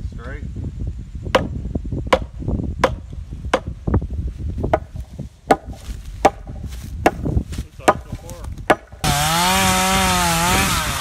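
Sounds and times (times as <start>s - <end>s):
hammer striking wooden post: 1.3s - 1.5s, 2.1s - 3.8s, 4.7s - 9.2s.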